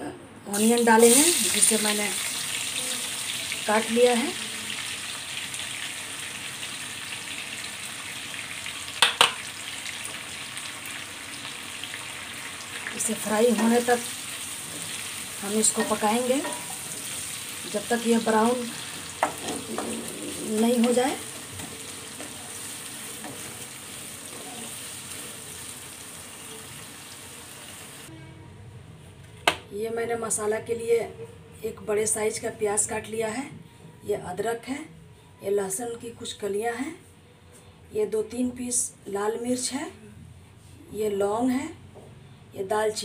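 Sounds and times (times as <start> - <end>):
onions sizzling in hot oil: 0.5 - 28.1.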